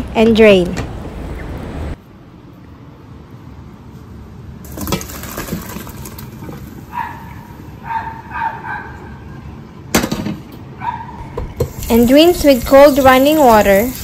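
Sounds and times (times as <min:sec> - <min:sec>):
water draining into colander: 0:04.7 - 0:06.6.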